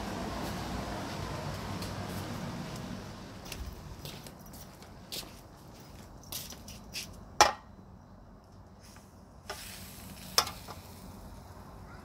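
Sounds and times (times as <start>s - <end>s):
frying hiss: 8.8s - 12.0s.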